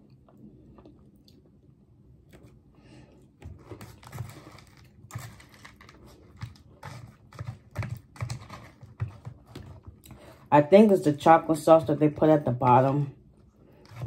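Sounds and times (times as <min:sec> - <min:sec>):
quiet chewing: 0:00.0 - 0:10.5
plastic spoon scraping in cup: 0:03.5 - 0:10.5, 0:13.7 - 0:14.0.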